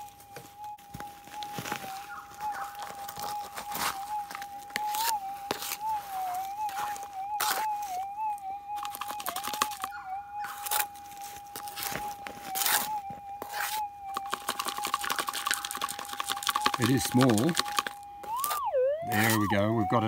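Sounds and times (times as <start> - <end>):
metal detector threshold hum: 0.0 - 20.0
gravel rattling in plastic scoop: 14.2 - 19.5.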